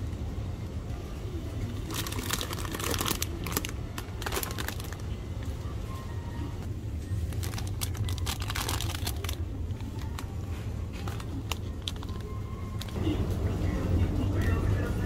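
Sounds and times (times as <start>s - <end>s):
steady low hum: 0.0s - 15.0s
plastic crinkling and rustling: 1.7s - 5.6s, 7.1s - 13.0s.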